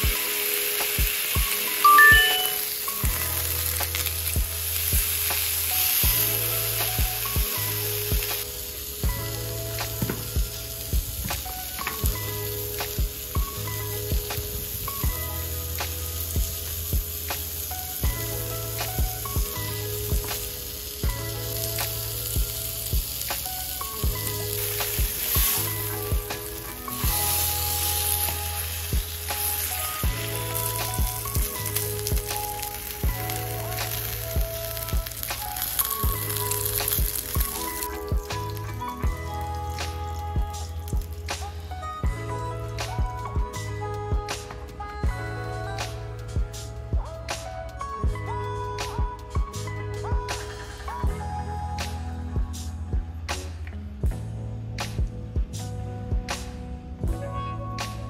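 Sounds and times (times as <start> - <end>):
steak sizzling in grill pan: 0.0 - 41.2
background music with even beat: 0.0 - 58.0.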